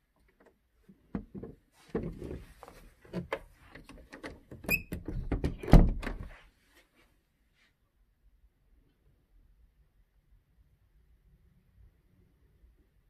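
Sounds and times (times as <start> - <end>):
door squeak: 4.6 - 6.0
closet door knocks and thumps: 4.8 - 6.3.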